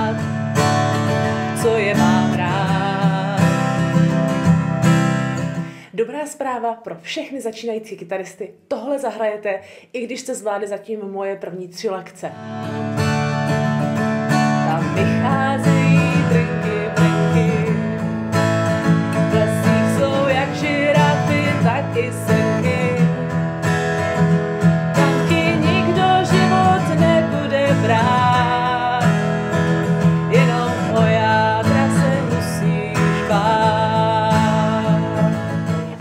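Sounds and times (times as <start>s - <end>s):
acoustic guitar strummed: 0.0s - 5.8s, 12.4s - 36.0s
woman singing: 0.0s - 13.0s, 14.5s - 18.2s, 18.8s - 23.5s, 24.9s - 36.0s.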